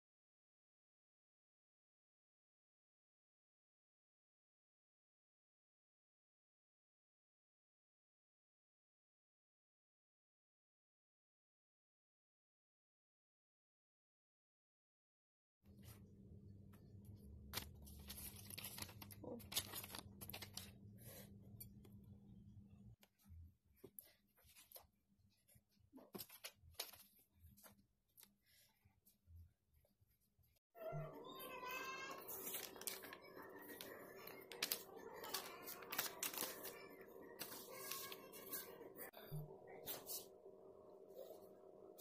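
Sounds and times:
paper rustling and tearing: 17.5 - 21.2, 31.6 - 39.1.

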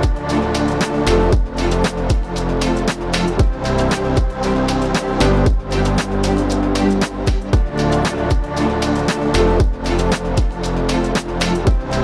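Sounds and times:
deep kick drums: 1.4 - 2.3, 3.4 - 3.6, 5.5 - 5.7, 7.3 - 8.6, 9.6 - 9.8, 11.7 - 11.9.

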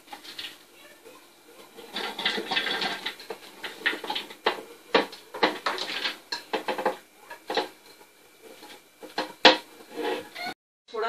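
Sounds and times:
food pieces dropping in bowl: 1.8 - 9.7.

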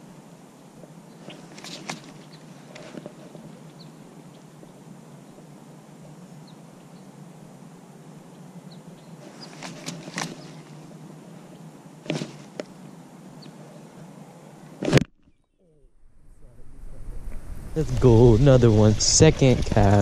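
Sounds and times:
low handling rumble: 15.8 - 20.0.

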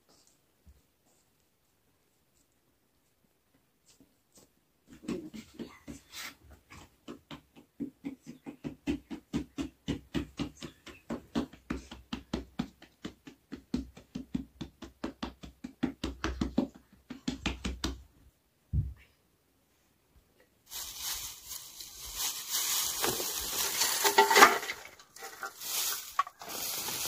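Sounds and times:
dough being kneaded by hand: 3.8 - 18.1, 20.7 - 27.0.

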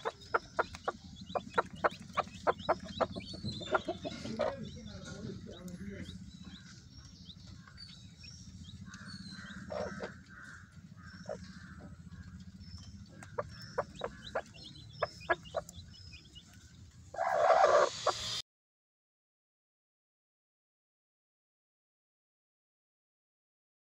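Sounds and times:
sharp ticks: 0.0 - 4.0, 5.5 - 16.6
hen clucking softly: 0.0 - 5.7, 8.9 - 18.4
chicks peeping: 0.0 - 18.4
loud hen call: 17.2 - 18.4.

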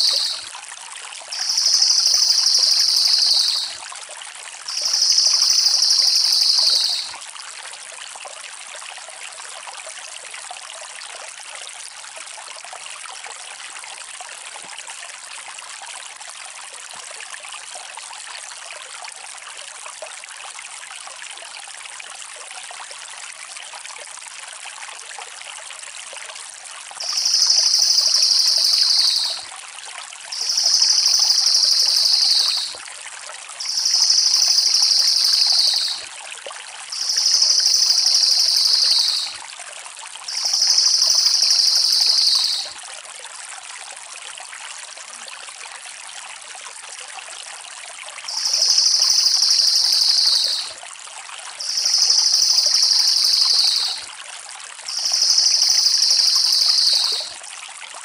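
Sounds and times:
bird shrill rolling trill: 0.0 - 0.5, 1.3 - 3.8, 4.7 - 7.2, 27.0 - 29.4, 30.4 - 32.8, 33.6 - 36.0, 37.0 - 39.4, 40.3 - 42.7, 48.3 - 50.7, 51.6 - 54.0, 54.9 - 57.3
stream flowing: 0.0 - 8.2, 27.0 - 39.6, 40.2 - 42.8, 48.0 - 50.8, 51.6 - 57.3.

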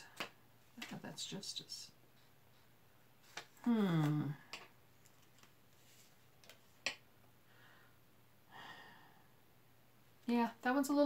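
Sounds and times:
booklet pages turning: 5.0 - 6.8.

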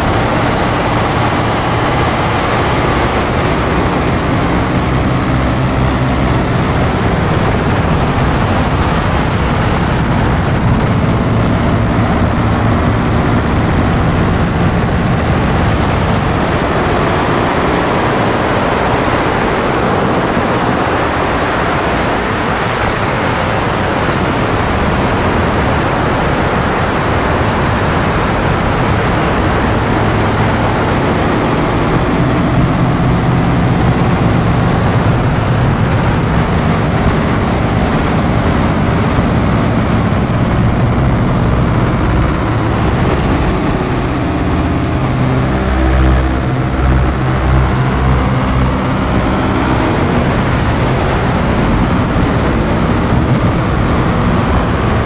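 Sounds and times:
roaring electronic noise music: 0.0 - 55.0
slow low pulses: 0.0 - 55.0
low tones: 24.8 - 55.0.

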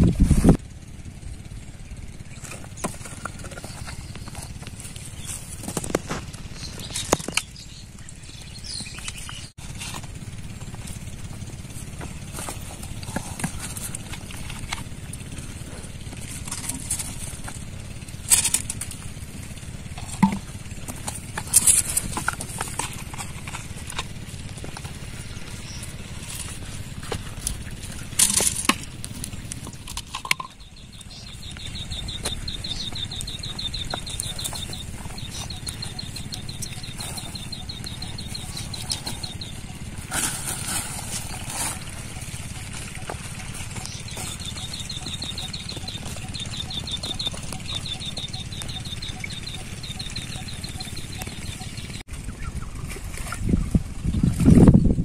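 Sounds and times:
steady low rumble: 0.0 - 55.0
plastic bottles knocking: 20.0 - 21.5.

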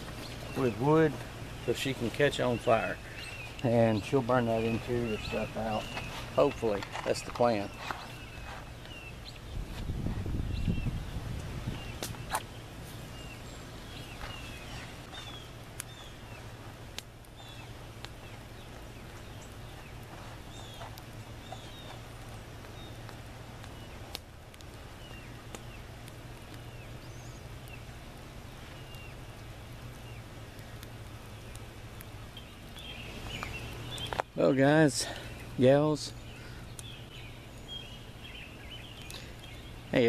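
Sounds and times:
kindling crackling: 0.0 - 40.0
small birds chirping: 0.0 - 40.0
steady low hum: 0.0 - 40.0.

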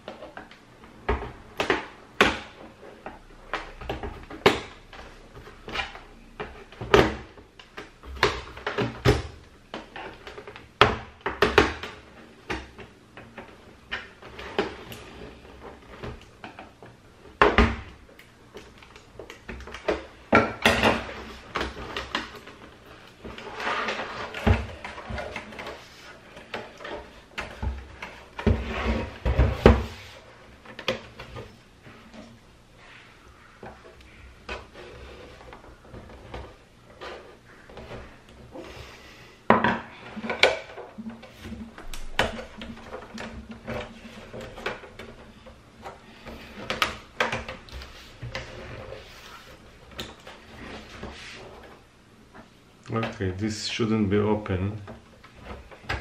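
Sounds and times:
plastic scraping: 18.5 - 53.4.

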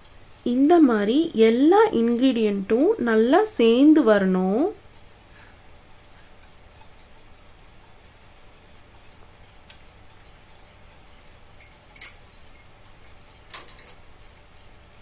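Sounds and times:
whisk stirring batter: 0.0 - 15.0
whisk ticking against bowl: 0.0 - 15.0
sharp clinks: 11.6 - 14.0.

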